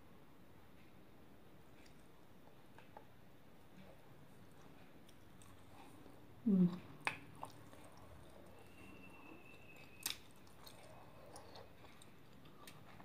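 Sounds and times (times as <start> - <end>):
faint thin high tone: 8.5 - 10.1.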